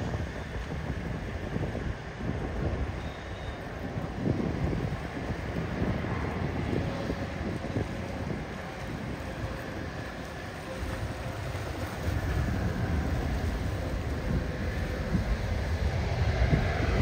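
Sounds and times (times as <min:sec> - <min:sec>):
jet engines rumbling: 0:00.0 - 0:17.0
wind buffeting microphone: 0:00.0 - 0:17.0.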